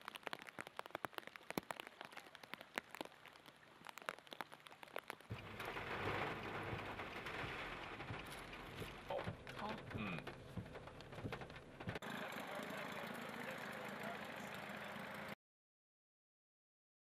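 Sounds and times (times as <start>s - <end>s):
raindrops ticking near microphone: 0.0s - 15.4s
heavy rain hissing: 2.2s - 10.4s.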